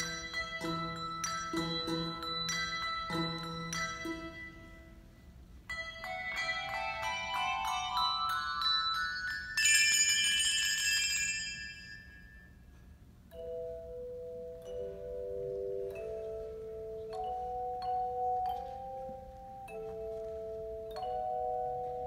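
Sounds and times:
handbells ringing: 0.0 - 22.0.

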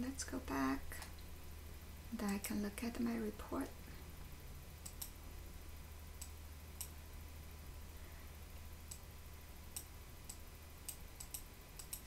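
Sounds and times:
faint low steady hum: 0.0 - 12.0
computer mouse clicks: 4.8 - 5.2, 9.7 - 12.0.

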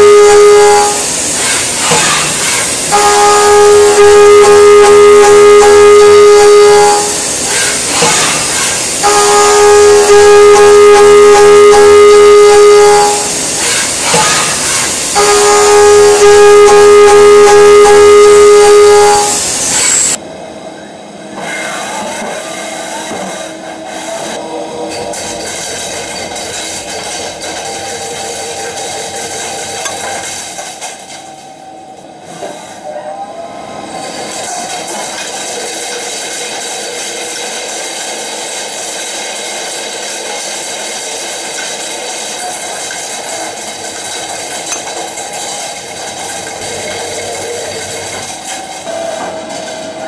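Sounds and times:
end mill cutting metal whine: 0.0 - 20.2
machine running noise: 0.0 - 50.0
faint machine tones: 9.0 - 13.3, 15.2 - 19.4.

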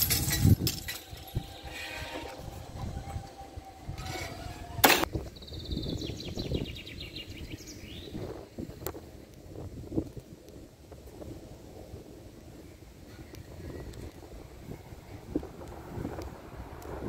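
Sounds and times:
barrier drive humming: 0.0 - 5.2
songbird trill: 5.1 - 8.3.

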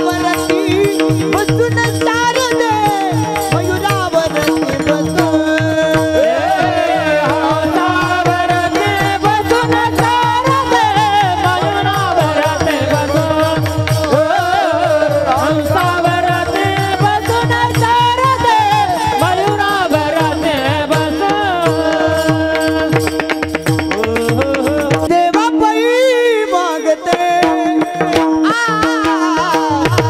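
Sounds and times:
men singing a chant: 3.2 - 23.2.

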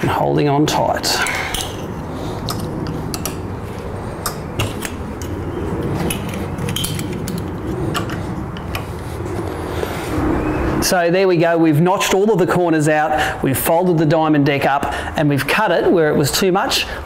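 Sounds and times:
metal clips clicking: 1.2 - 3.5, 6.0 - 9.0.

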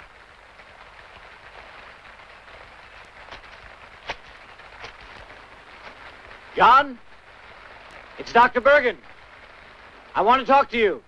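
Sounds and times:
steady hiss: 0.0 - 11.0
light footsteps: 0.9 - 8.1.

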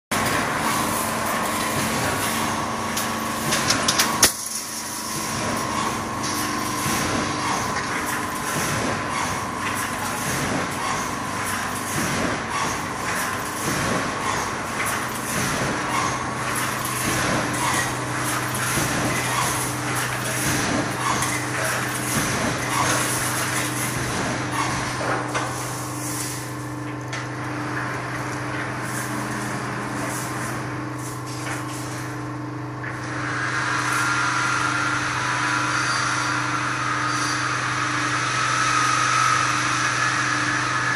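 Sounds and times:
machine humming and whining: 0.1 - 40.9
sharp machine knocks: 6.8 - 25.6.

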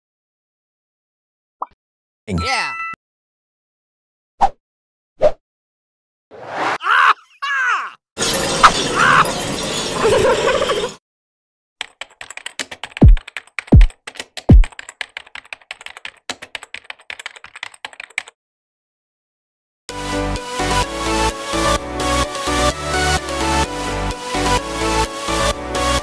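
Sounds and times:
computer keyboard typing: 11.8 - 18.4.

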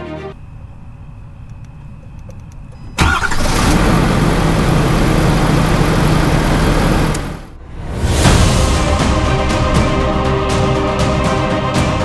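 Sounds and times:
pickup truck engine starting and idling: 0.4 - 7.6.

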